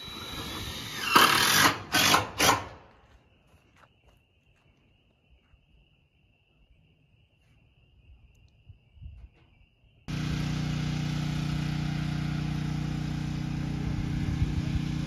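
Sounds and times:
cordless drill driving a screw: 0.0 - 2.7.

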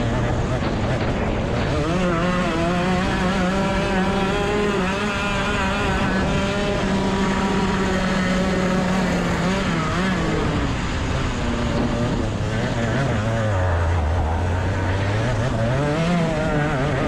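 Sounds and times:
racing kart engine: 0.0 - 17.0.

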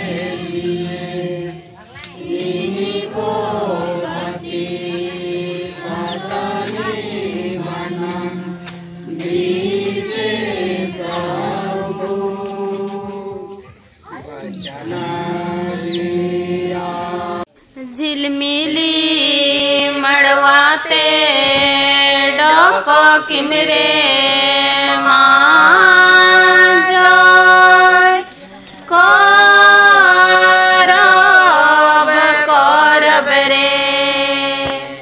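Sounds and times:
woman singing slow melody: 16.7 - 35.0.

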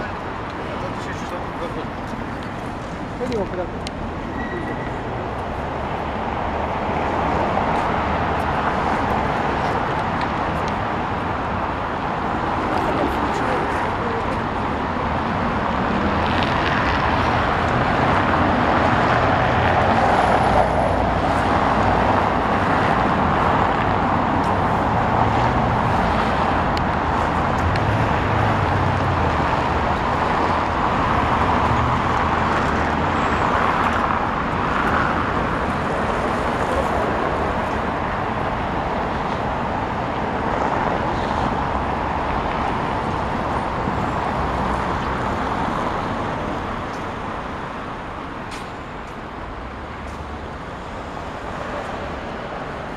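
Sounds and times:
cars driving past: 0.0 - 52.9.

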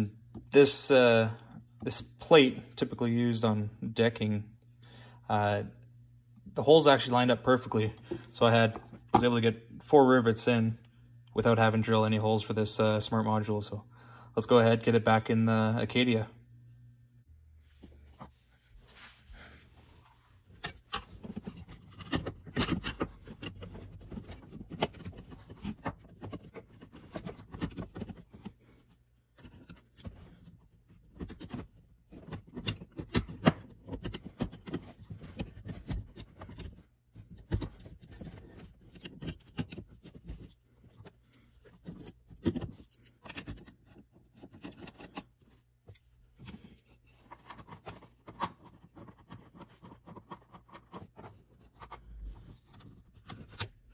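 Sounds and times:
rubbing and scraping: 17.7 - 53.9.

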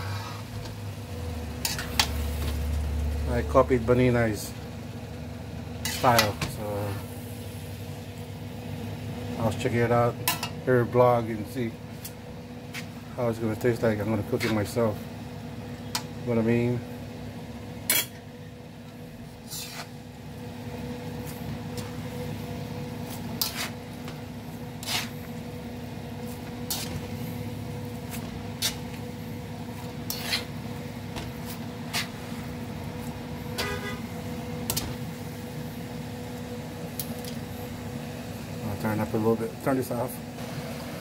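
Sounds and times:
metal spatula scraping a pan: 1.6 - 2.2, 5.8 - 6.4, 19.4 - 20.0, 23.0 - 23.9, 24.8 - 25.3, 26.3 - 27.2, 28.0 - 28.9, 29.8 - 30.6.

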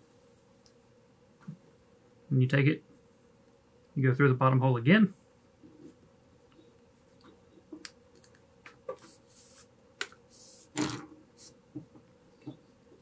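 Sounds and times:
cord sliding hissing scrape: 8.9 - 9.7, 10.3 - 11.6.

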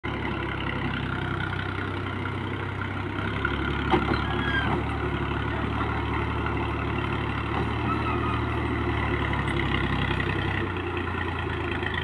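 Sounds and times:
tractor diesel engine running: 0.0 - 12.0
brief squeal: 4.1 - 4.8, 7.7 - 8.7.

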